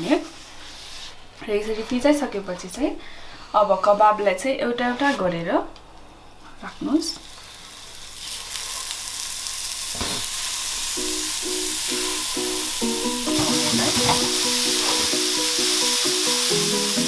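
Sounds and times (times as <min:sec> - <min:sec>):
kebabs sizzling on a griddle: 0:07.3 - 0:17.0
background music with repeating tune: 0:11.0 - 0:17.0.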